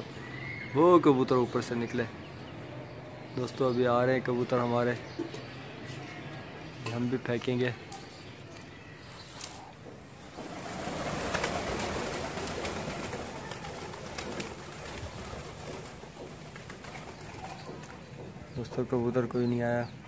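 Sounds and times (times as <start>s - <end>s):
pigeon wingbeats: 10.2s - 18.2s.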